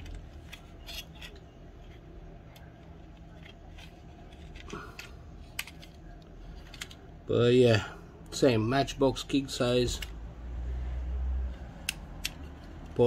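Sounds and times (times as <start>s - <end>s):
toy cars clicking and scraping: 0.0s - 7.2s, 9.6s - 10.2s, 11.5s - 13.0s
low steady hum: 0.0s - 13.0s.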